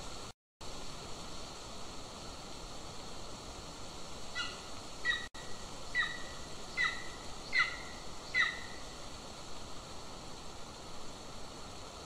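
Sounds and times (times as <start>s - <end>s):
steady hiss: 0.0s - 12.0s
eagle yelping calls: 4.4s - 5.3s, 5.9s - 8.8s.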